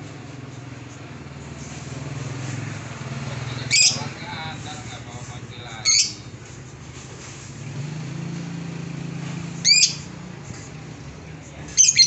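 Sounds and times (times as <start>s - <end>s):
bird chirping shrilly: 3.6s - 4.1s, 5.8s - 6.3s, 9.6s - 10.1s, 11.8s - 12.0s.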